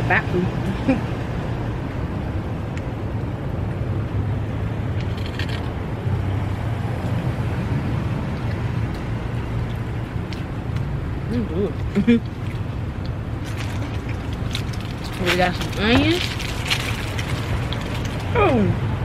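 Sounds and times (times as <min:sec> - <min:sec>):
traffic hum: 0:00.0 - 0:19.0.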